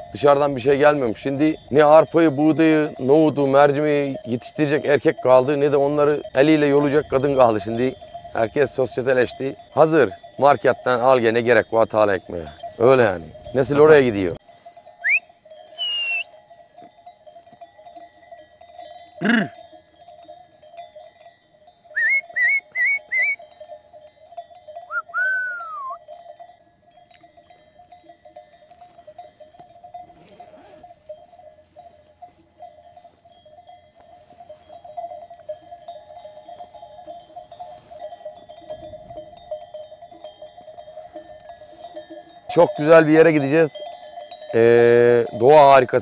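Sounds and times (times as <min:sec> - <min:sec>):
sheep bells ringing: 0:00.0 - 0:46.0
person whistling: 0:15.0 - 0:16.3, 0:22.0 - 0:23.4, 0:24.9 - 0:26.0
sheep bleating: 0:30.1 - 0:31.0.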